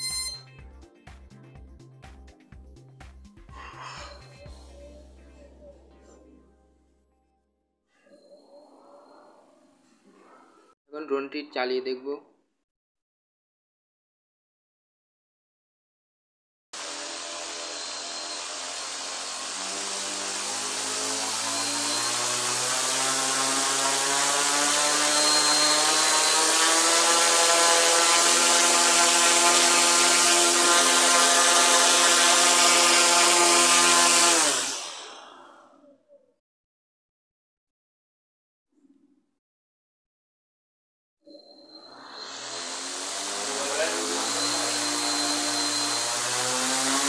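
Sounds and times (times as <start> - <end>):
electric motor and propeller whine: 16.8 - 35.3, 41.8 - 47.0.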